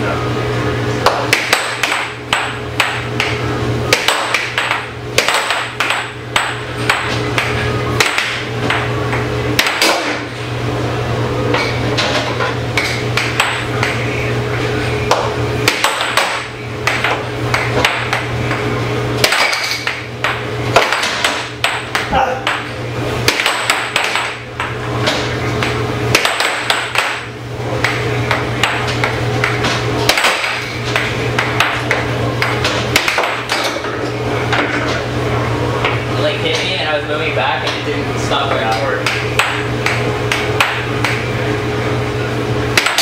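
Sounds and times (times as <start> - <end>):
air blower hum: 0.0 - 43.0
air hockey puck clacking: 1.0 - 10.3, 11.6 - 14.0, 15.1 - 18.6, 19.2 - 35.0, 38.5 - 41.2, 42.8 - 43.0.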